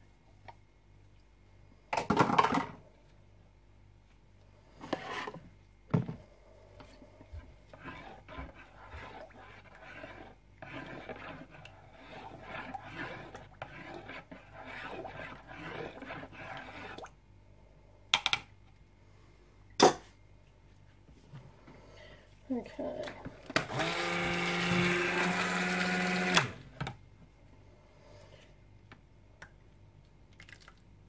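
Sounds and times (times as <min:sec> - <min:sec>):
utensil scraping plastic bowl: 0:04.8 - 0:05.4, 0:06.8 - 0:17.1.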